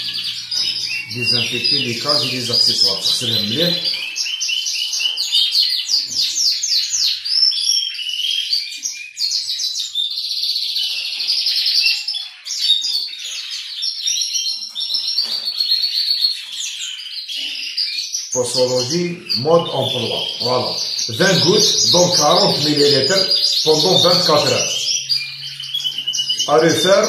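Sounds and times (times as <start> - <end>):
finches twittering: 0.0 - 4.7, 17.4 - 27.0.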